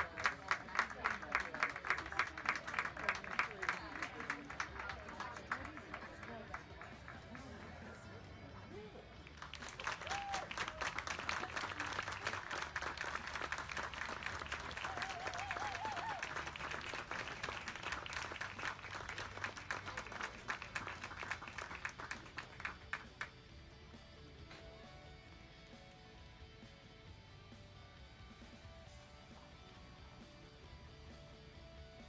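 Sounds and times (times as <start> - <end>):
crowd applauding: 0.0 - 7.7, 9.2 - 23.3
crowd cheering: 9.4 - 21.3.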